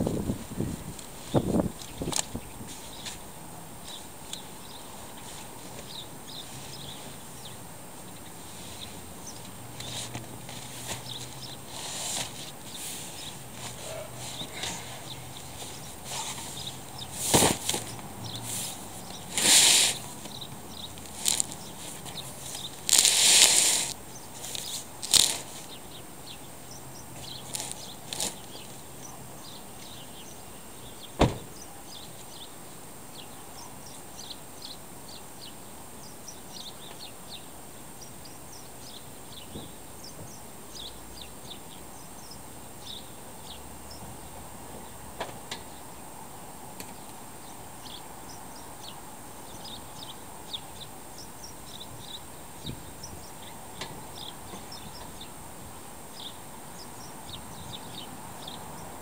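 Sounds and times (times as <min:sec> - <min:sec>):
outdoor background hiss: 0:00.0 - 0:59.0
car door slamming: 0:31.2 - 0:31.5.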